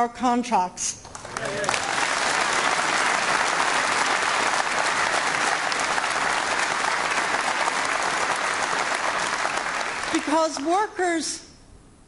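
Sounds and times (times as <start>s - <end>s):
audience applauding: 1.0s - 10.7s.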